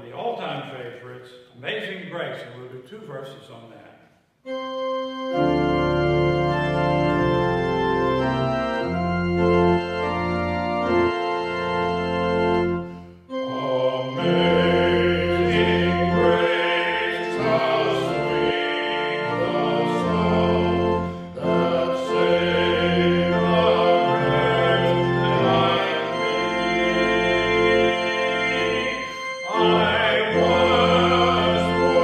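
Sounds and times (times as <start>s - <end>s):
church organ chords: 4.5s - 32.0s.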